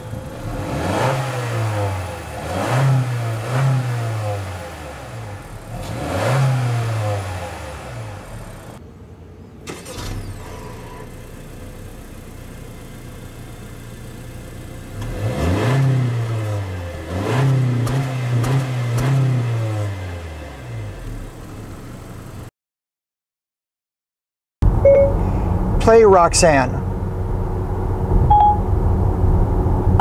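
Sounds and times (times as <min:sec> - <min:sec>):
car engine idling and revving: 0:00.0 - 0:22.5, 0:24.6 - 0:30.0.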